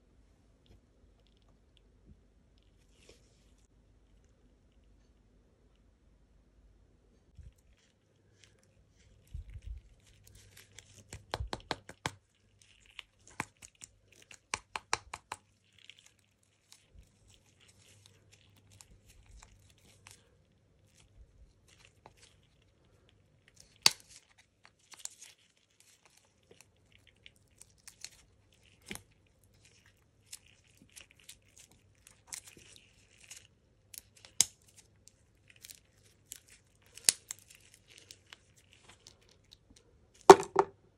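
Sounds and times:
hard wax crackling and crinkling: 0:07.3 - 0:40.7
sharp wax cracks: 0:09.8 - 0:40.3.

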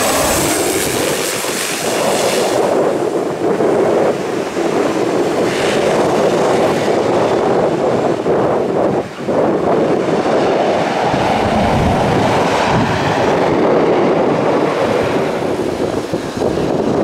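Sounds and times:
light aircraft engine rumble: 0:00.0 - 0:04.1, 0:10.5 - 0:17.0
wind buffeting microphone: 0:00.0 - 0:17.0.

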